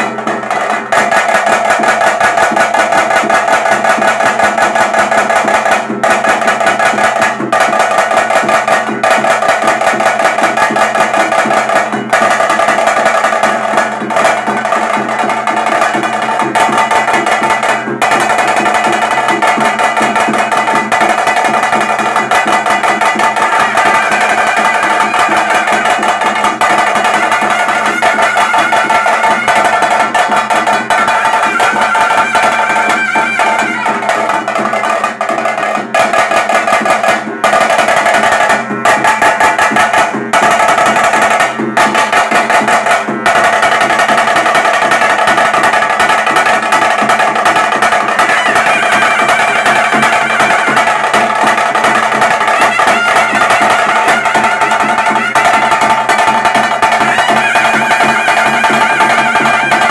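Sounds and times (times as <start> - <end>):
drums beaten in fast rhythm: 0.0 - 59.9
brass wind instrument melody: 23.4 - 34.6, 48.0 - 59.9.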